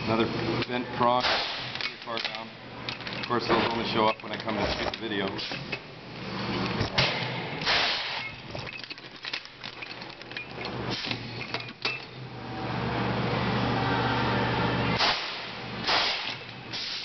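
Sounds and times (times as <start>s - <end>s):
steady hiss with low hum: 0.0s - 13.8s
air blasts: 1.2s - 1.8s, 7.0s - 8.2s, 15.0s - 17.0s.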